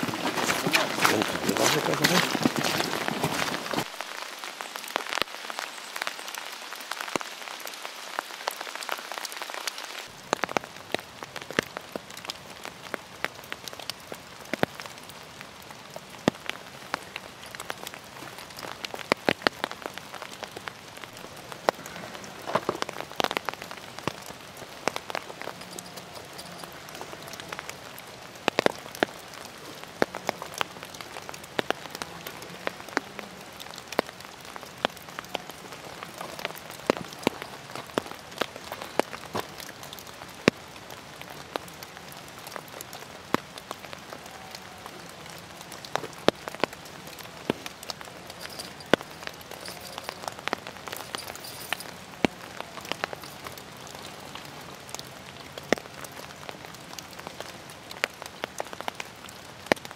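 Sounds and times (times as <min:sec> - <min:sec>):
rain pattering: 0:00.0 - 0:59.9.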